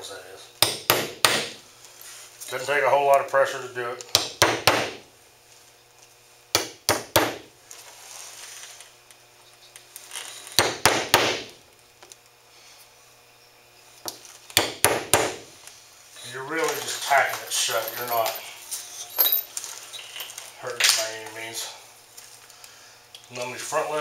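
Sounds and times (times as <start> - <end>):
hammer tapping nails: 0.6 - 1.6, 4.1 - 5.0, 10.6 - 11.5, 14.6 - 15.4.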